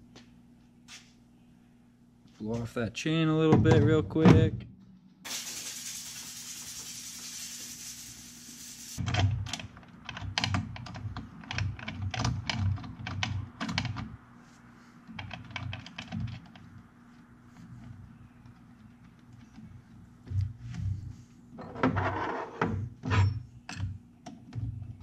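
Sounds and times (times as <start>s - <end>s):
compressed air hissing: 5.3s - 9.0s.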